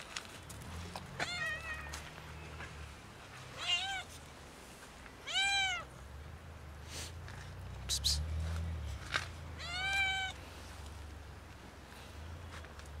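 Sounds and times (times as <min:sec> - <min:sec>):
cat meowing: 0:01.2 - 0:01.9, 0:03.6 - 0:04.1, 0:05.2 - 0:05.9, 0:09.6 - 0:10.4.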